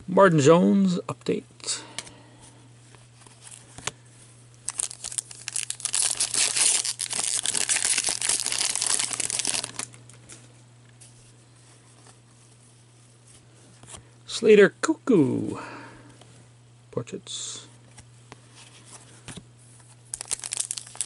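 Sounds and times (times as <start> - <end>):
steady low hum: 0.0 - 21.0
foil wrapper tearing and crinkling: 4.7 - 10.0, 20.1 - 21.0.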